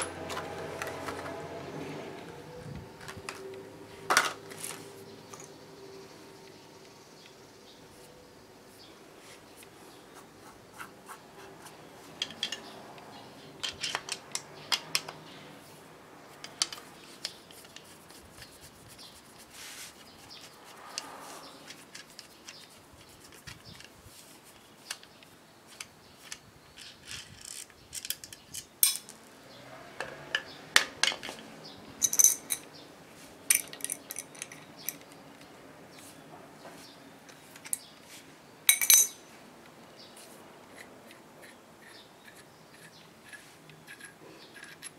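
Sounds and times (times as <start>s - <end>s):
tools clinking on drill chuck: 38.7s - 39.2s.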